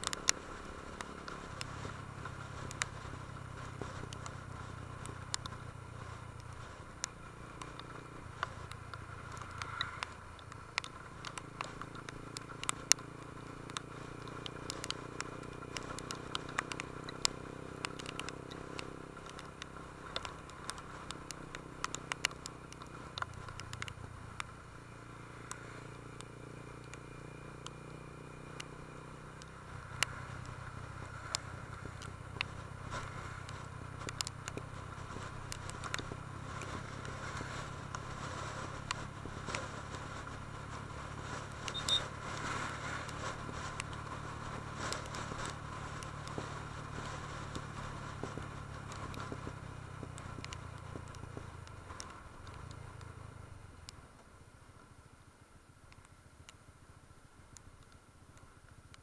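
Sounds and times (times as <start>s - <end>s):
motorcycle engine running: 0.0s - 59.0s
short sharp ticks: 6.3s - 21.1s.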